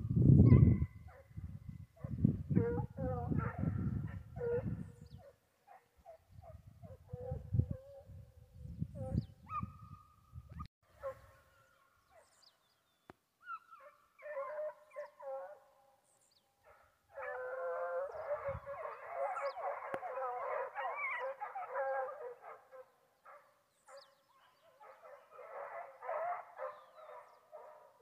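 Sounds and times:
hounds baying: 2.0s - 8.1s, 11.0s - 12.4s, 13.5s - 15.7s, 16.6s - 28.0s.

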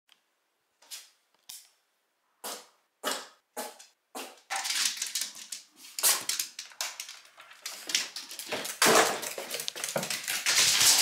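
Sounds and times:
rustling: 4.5s - 11.0s.

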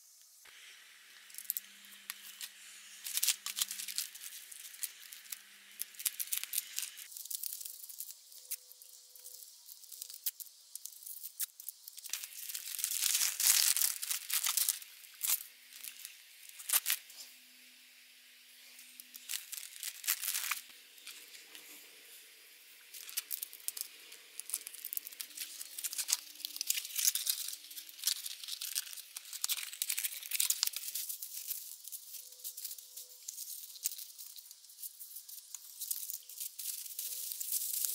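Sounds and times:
plastic packaging crinkling: 1.2s - 17.2s, 18.8s - 21.8s, 22.8s - 37.9s
plastic ripping: 1.3s - 8.6s, 9.8s - 17.1s, 19.0s - 21.7s, 22.9s - 34.5s.

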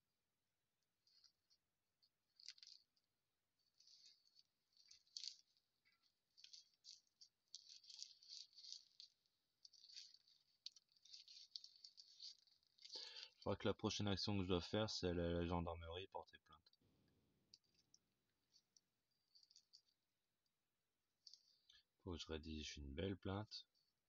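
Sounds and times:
rolling paper and tobacco rustling: 1.0s - 20.1s.

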